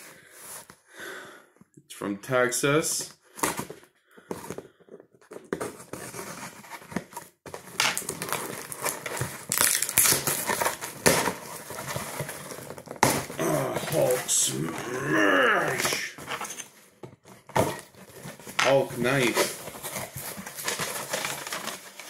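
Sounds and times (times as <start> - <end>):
cardboard tearing: 5.6 - 16.4, 17.4 - 22.0
plastic packaging crinkling: 7.6 - 16.6, 17.7 - 22.0.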